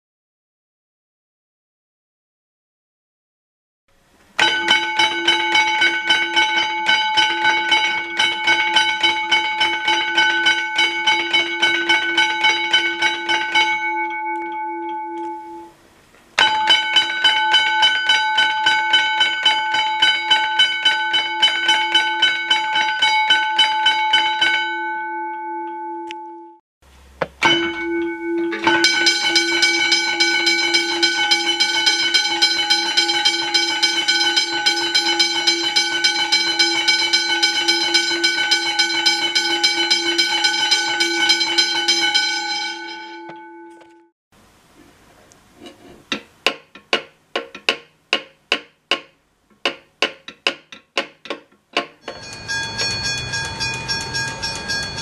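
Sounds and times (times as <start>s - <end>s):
railway crossing bell ringing rapidly: 4.4s - 15.8s, 16.4s - 26.6s, 27.4s - 44.1s, 52.0s - 55.0s.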